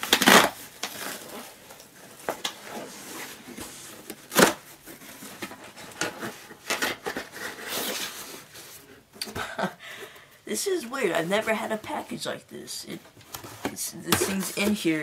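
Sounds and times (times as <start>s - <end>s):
cardboard tearing: 0.0s - 1.7s, 2.3s - 8.5s
cardboard scraping and rustling: 0.2s - 9.0s.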